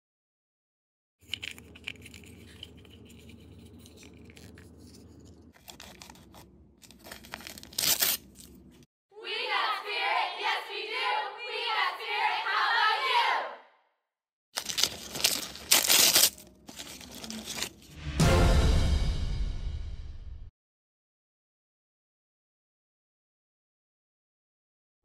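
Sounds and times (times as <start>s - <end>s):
plastic packaging rustling: 1.3s - 8.8s, 14.6s - 18.0s
foil wrapper tearing open: 5.6s - 8.8s, 14.6s - 17.9s.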